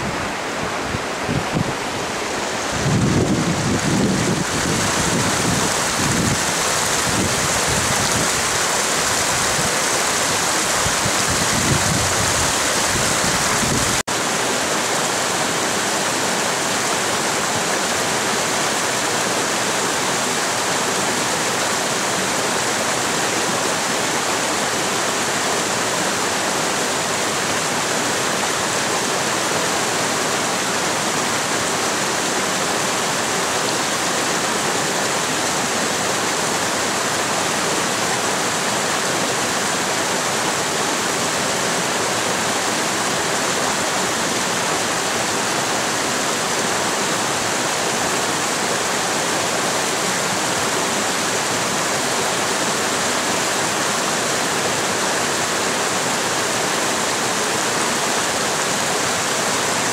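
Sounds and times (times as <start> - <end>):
creek rushing over boulders: 0.0 - 59.9.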